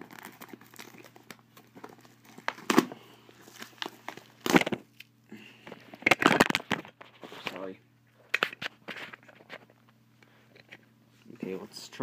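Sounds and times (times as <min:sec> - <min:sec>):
plastic wrap crinkling: 0:00.0 - 0:05.1.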